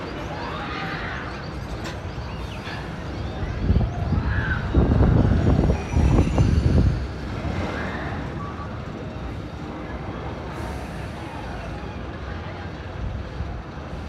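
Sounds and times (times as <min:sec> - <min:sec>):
wind buffeting microphone: 0:03.0 - 0:09.6.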